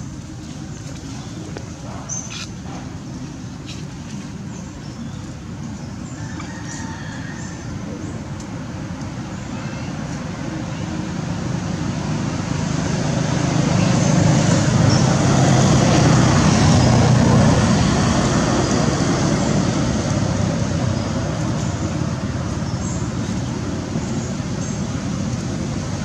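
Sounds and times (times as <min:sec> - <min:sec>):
motorbike passing: 0:10.4 - 0:26.0.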